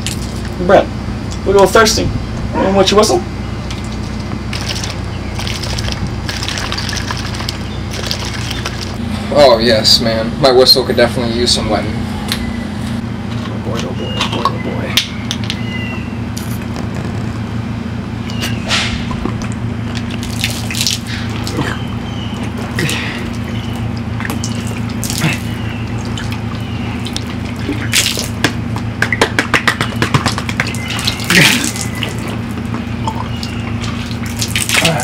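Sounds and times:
steady low hum: 0.0 - 35.0
water gushing and splashing: 3.7 - 9.0, 19.2 - 29.6, 30.2 - 35.0.

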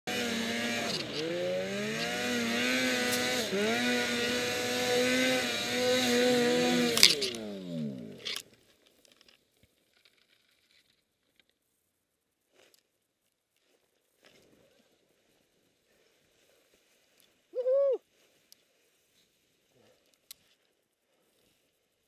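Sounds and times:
snowmobile engine revving: 0.0 - 8.4.

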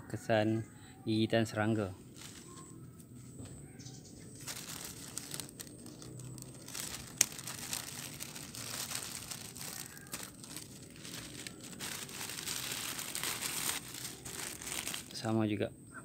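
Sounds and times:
plastic bag crinkling: 2.1 - 2.7, 4.3 - 15.3.

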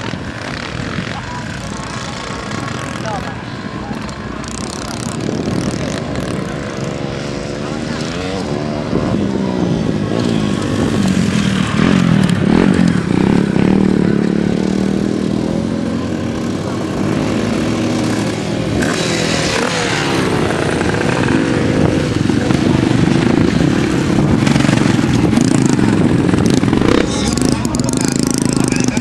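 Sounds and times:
dirt bike engines revving: 0.0 - 29.0.

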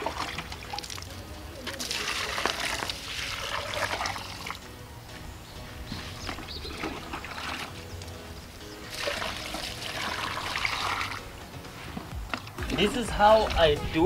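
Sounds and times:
water trickling and splashing: 0.0 - 4.7, 5.8 - 11.7.

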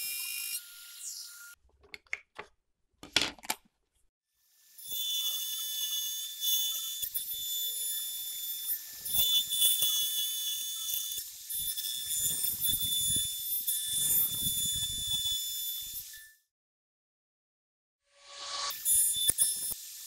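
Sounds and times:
router bit cutting wood: 4.8 - 16.1.

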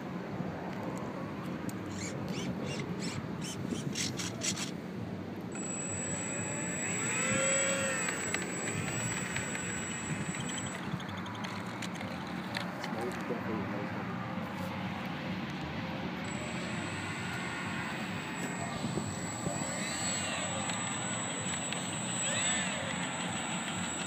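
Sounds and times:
model plane electric motor and propeller: 1.7 - 4.8, 5.4 - 24.0
thin high whine: 5.5 - 12.7, 16.2 - 24.0.

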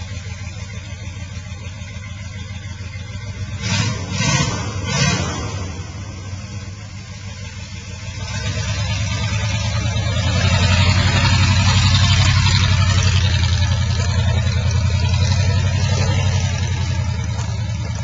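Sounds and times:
truck engine pulling away: 0.0 - 18.0.

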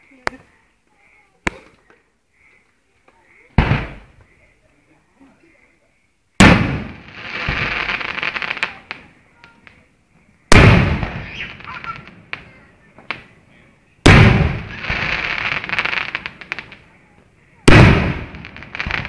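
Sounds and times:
firework pops: 1.4 - 1.9, 3.6 - 4.3, 6.4 - 9.9, 10.5 - 13.4, 14.0 - 16.9, 17.6 - 19.0
firework crackling: 6.4 - 13.4, 14.0 - 19.0.

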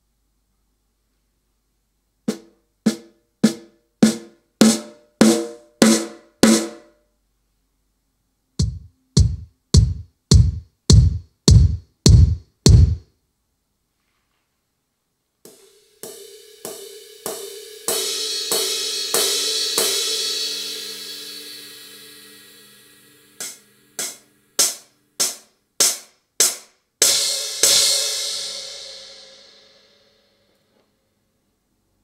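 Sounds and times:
cymbal strokes ringing: 15.5 - 25.4
sharp drum hits: 15.5 - 29.5.

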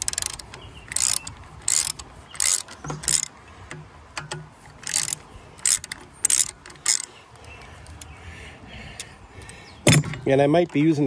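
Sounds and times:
hand tool ratcheting clicks: 0.0 - 8.1.

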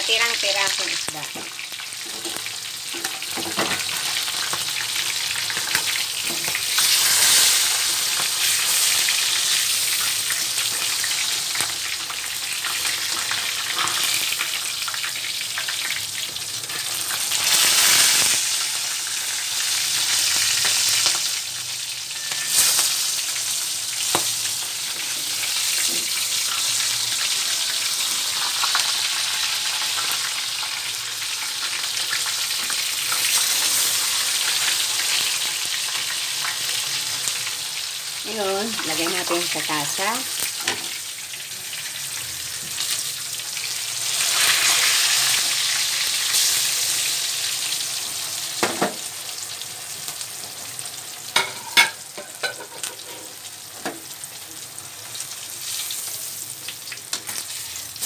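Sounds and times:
fish sizzling in hot oil: 0.0 - 58.0
sharp pops of frying oil: 48.6 - 49.0.

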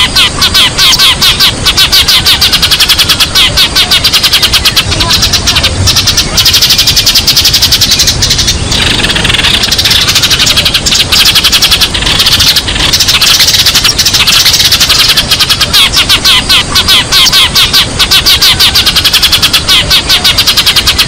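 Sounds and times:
sparrows chirping: 0.0 - 21.0.

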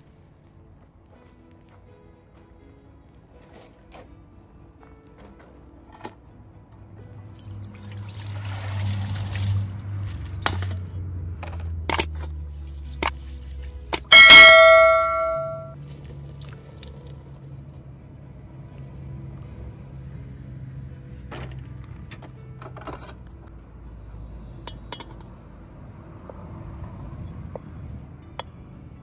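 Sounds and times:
water pouring into metal pot: 7.2 - 10.6
bell ding: 14.1 - 15.8.

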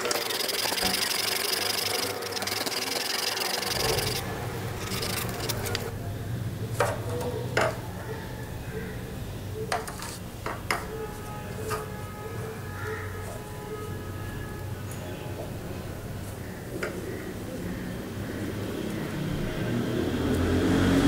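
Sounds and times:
metal rasping against abrasive: 0.0 - 5.9.

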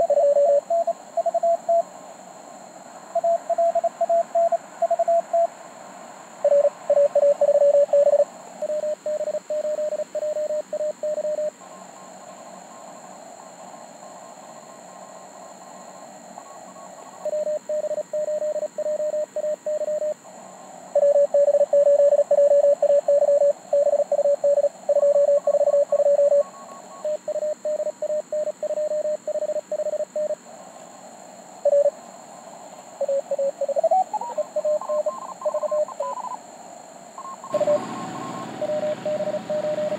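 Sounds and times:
faint high morse signals: 0.0 - 1.9, 2.8 - 5.6, 6.4 - 30.4, 31.6 - 32.0, 33.0 - 36.4, 37.2 - 39.9
receiver hiss: 0.0 - 39.9
morse code tones: 37.4 - 39.9.

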